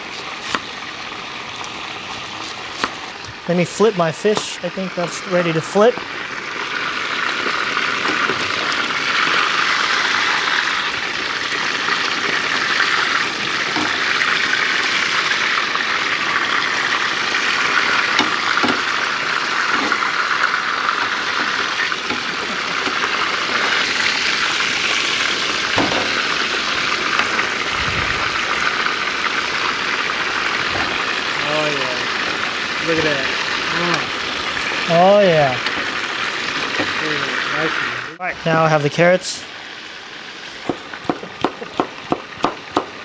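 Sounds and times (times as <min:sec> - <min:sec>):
fish sizzling in hot oil: 0:00.0 - 0:38.2, 0:38.8 - 0:43.0.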